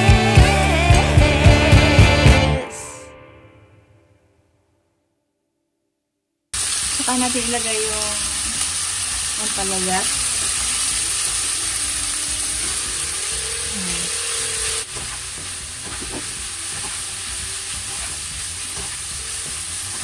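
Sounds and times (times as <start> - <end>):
food sizzling in a frying pan: 6.6 - 20.0
spatula scraping a pan: 10.1 - 20.0.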